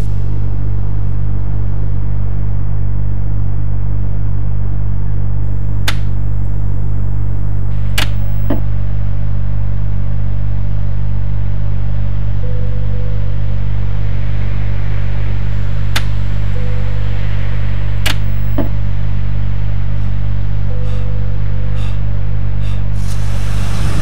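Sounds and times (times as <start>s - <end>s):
car engine rumble inside cabin: 0.0s - 24.0s
sharp clicks: 5.8s - 6.2s, 7.9s - 8.6s, 15.9s - 16.2s, 18.0s - 18.7s.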